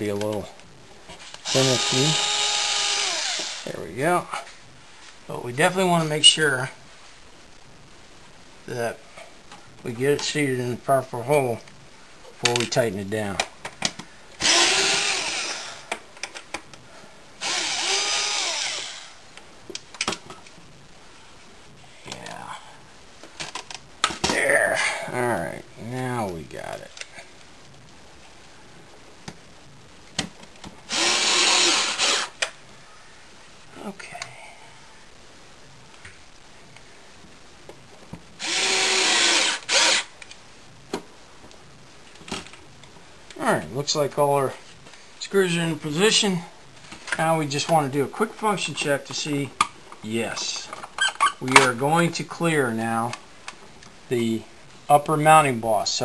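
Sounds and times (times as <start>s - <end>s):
power drill driving screws: 1.3s - 3.7s, 14.4s - 15.8s, 17.4s - 19.2s, 30.9s - 32.4s, 38.4s - 40.1s.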